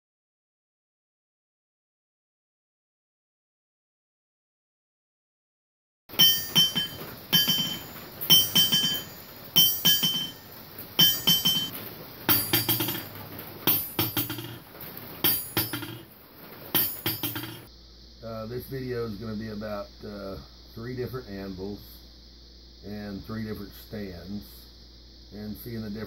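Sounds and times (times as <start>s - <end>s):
hammer ringing on metal anvil: 6.1s - 14.6s, 15.2s - 16.1s, 16.8s - 17.7s
hammer rebound bounces: 6.1s - 17.7s.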